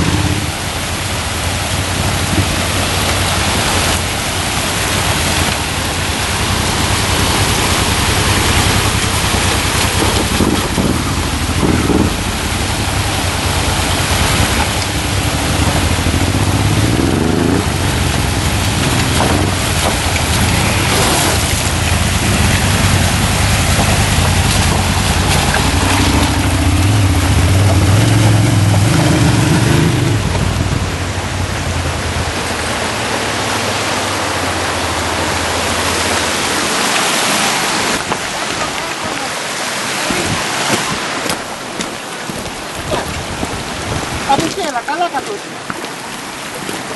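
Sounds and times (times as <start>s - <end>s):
motorcycle engine under throttle: 0.0s - 32.4s
rushing water: 0.0s - 46.9s
wind noise: 1.6s - 32.4s, 40.0s - 44.7s.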